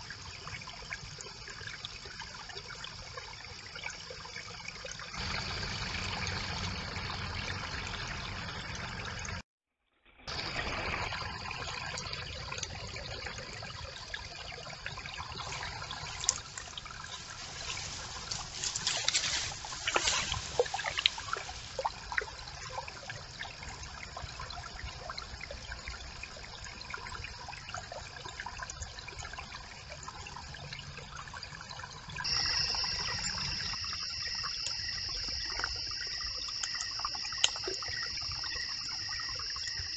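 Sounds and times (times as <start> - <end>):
brook water trickling: 0.0 - 9.4, 10.3 - 39.9
small water splashes: 10.3 - 39.9
steady high-pitched tone: 32.2 - 39.9.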